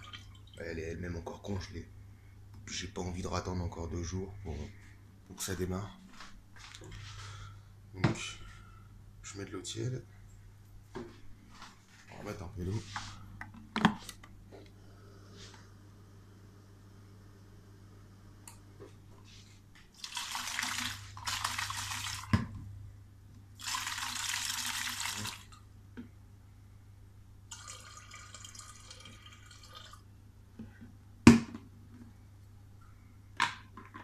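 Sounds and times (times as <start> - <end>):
water splashing into plastic jug: 0.0 - 0.6, 20.0 - 22.5.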